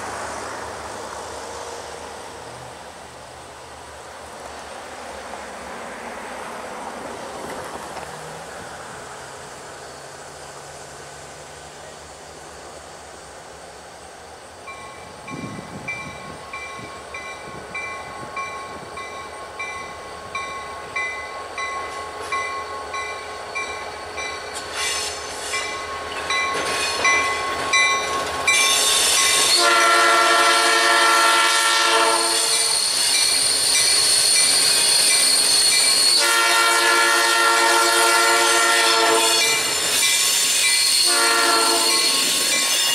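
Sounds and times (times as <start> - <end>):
freight train approaching: 0.0 - 42.9
crossing bell ringing: 14.7 - 24.6, 25.5 - 29.6, 39.2 - 42.9
train horn blasts: 29.4 - 32.8, 36.0 - 39.7, 40.9 - 42.9.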